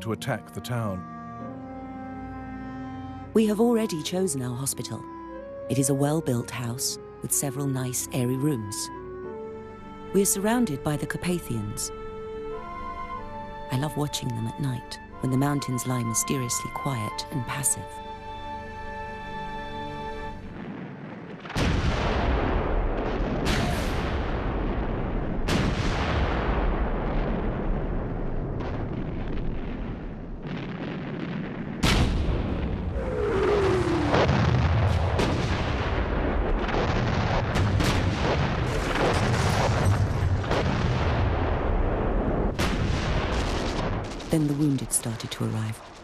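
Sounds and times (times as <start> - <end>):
artillery booms: 20.5 - 44.6.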